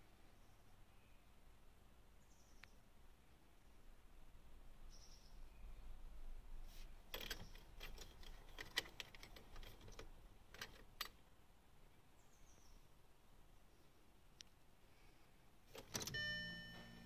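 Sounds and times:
sharp clicks and ticks in car: 7.1s - 11.2s, 15.7s - 16.9s.

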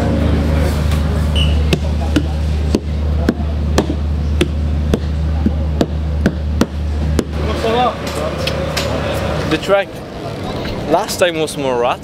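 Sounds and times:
background music with bass: 0.0s - 9.6s.

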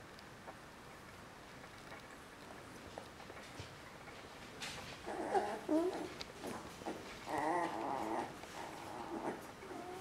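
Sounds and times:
puppies whining: 5.0s - 10.0s.

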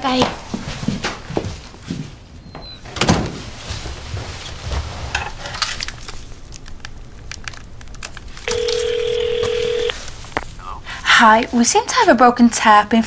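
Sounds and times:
phone and paper rustling: 5.6s - 10.6s
steady telephone tone: 8.5s - 10.0s.

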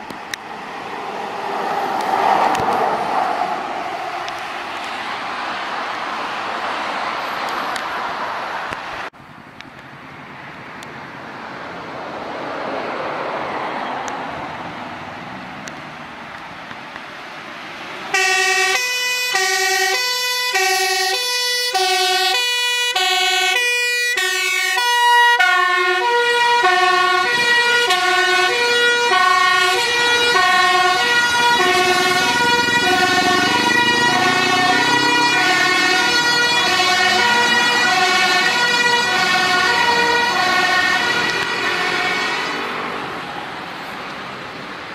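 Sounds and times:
truck engine accelerating: 0.0s - 6.7s, 17.6s - 44.7s
road traffic passing: 0.0s - 44.9s
two-tone siren: 18.1s - 42.6s.

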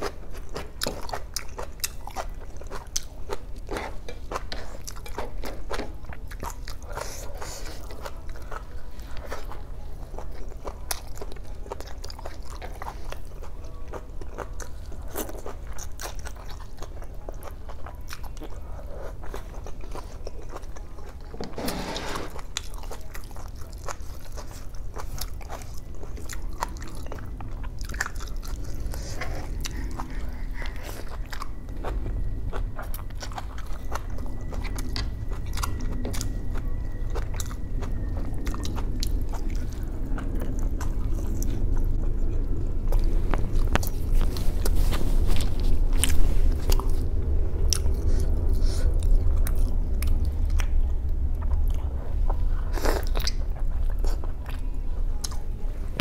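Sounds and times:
wet chewing and biting: 22.3s - 55.4s
low hum: 24.7s - 56.0s.

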